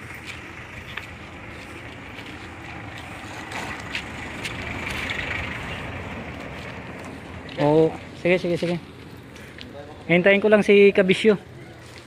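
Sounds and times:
street background noise: 0:00.0 - 0:12.0.

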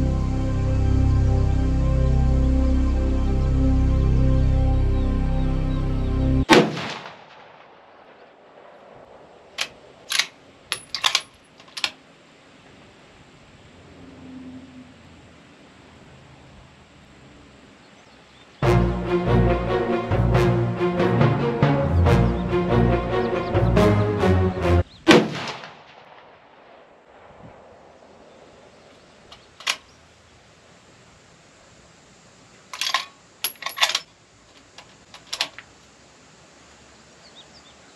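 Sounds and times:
background music: 0:00.0 - 0:06.5, 0:18.6 - 0:24.9
rifle shot: 0:06.5 - 0:08.5, 0:25.0 - 0:27.8
sharp cracks: 0:06.5 - 0:12.0, 0:25.0 - 0:29.9.

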